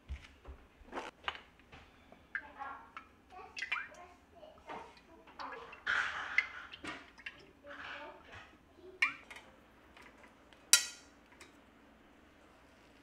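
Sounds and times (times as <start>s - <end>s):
metal tongs clinking on rack: 10.8s - 11.5s.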